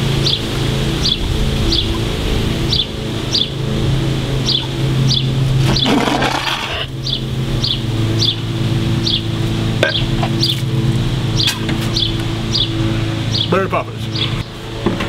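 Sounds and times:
foam spluttering from mouth: 0:05.6 - 0:06.9.

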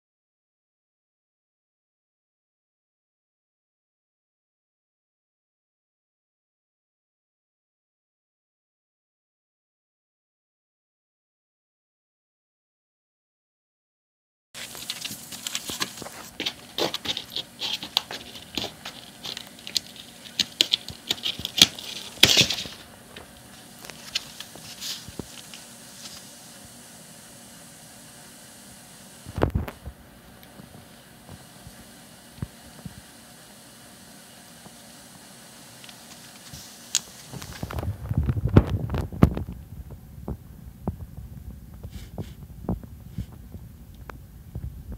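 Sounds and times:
cat claws scratching cardboard: 0:14.6 - 0:26.4.

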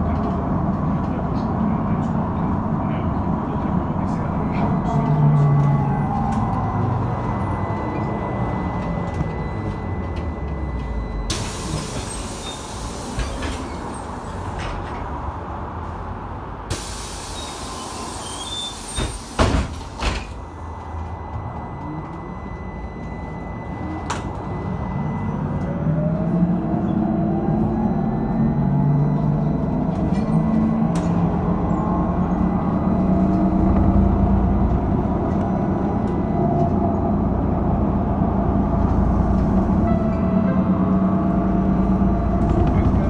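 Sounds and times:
running gear and road rumble: 0:29.2 - 0:43.0.

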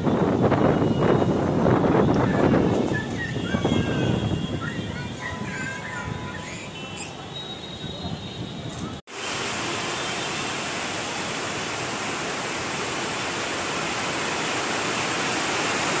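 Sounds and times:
rain hissing: 0:09.1 - 0:16.0.

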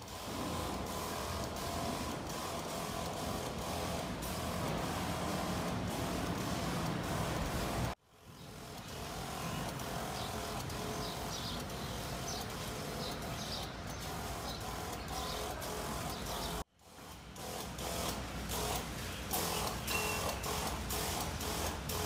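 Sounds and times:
backpack sprayer hissing: 0:00.0 - 0:08.0, 0:08.6 - 0:22.0.

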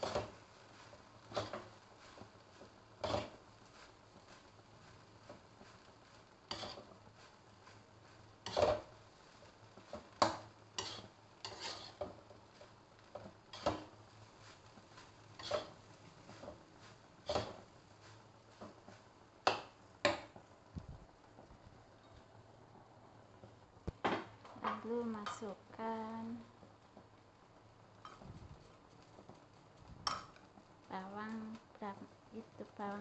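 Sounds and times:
spatula scraping a wok: 0:00.0 - 0:20.4.

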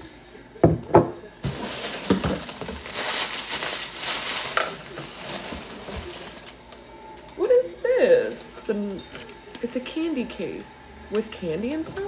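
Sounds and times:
packaging crinkling and rustling: 0:01.4 - 0:07.4.

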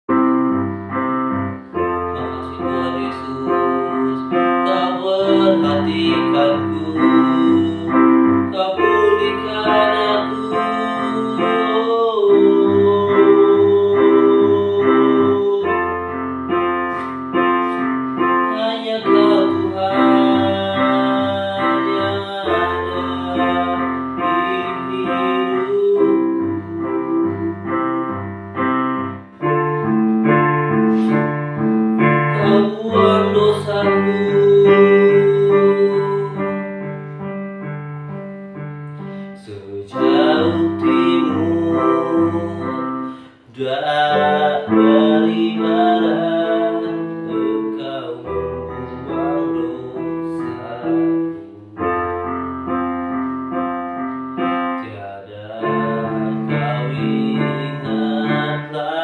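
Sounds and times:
electronic keyboard piano chords: 0:00.0 - 0:59.0
deep held bass notes: 0:22.6 - 0:36.6.

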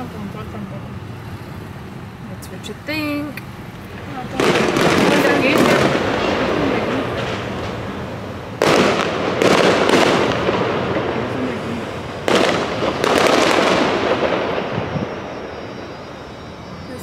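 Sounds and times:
fireworks bangs with echoing rumble: 0:03.8 - 0:16.9.

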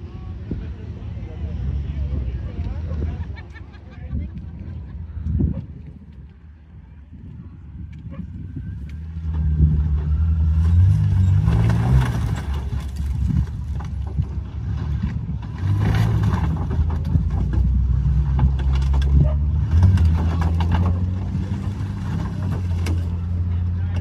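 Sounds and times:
engine revving: 0:08.9 - 0:24.0.

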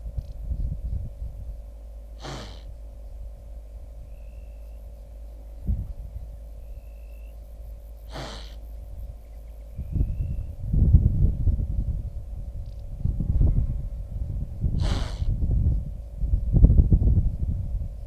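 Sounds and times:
steady low hum: 0:00.0 - 0:18.0
wildebeest snorting: 0:02.2 - 0:02.7, 0:08.1 - 0:08.7, 0:14.8 - 0:15.3.

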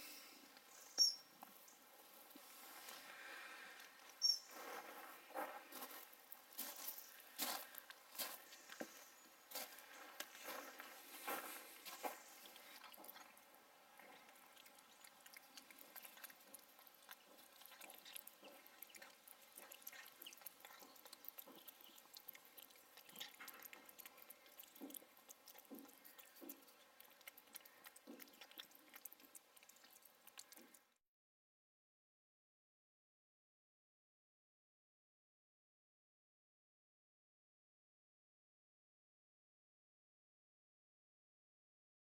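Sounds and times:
cat chewing and licking: 0:00.0 - 0:31.0.

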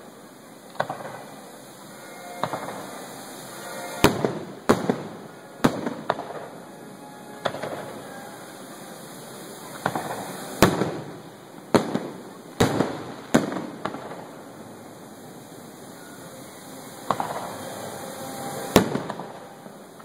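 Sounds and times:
firework shells bursting: 0:00.7 - 0:14.7, 0:16.9 - 0:20.0.

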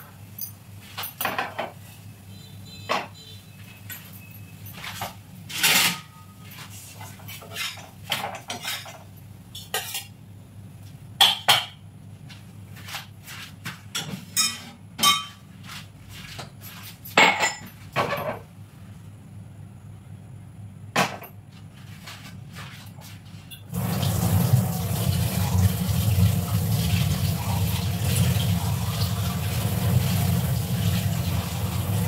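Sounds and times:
steel kitchenware clinking: 0:03.9 - 0:06.3, 0:14.0 - 0:15.4.

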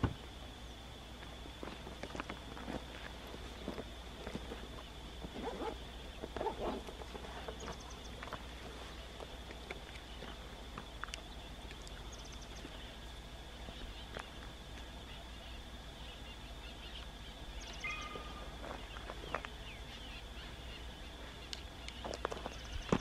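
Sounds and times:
faint low rumble: 0:00.0 - 0:23.0
high-pitched drone: 0:15.0 - 0:21.4
short bird calls: 0:15.0 - 0:22.9.

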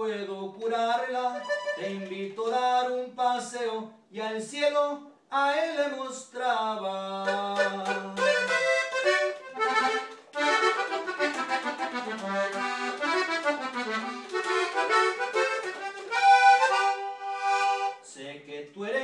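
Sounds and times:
accordion playing: 0:01.1 - 0:02.2, 0:07.2 - 0:18.1.

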